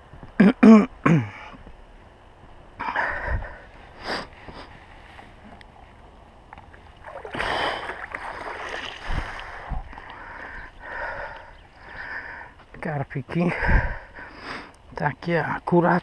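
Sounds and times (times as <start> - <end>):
water splashing off a net: 7.0 - 9.6.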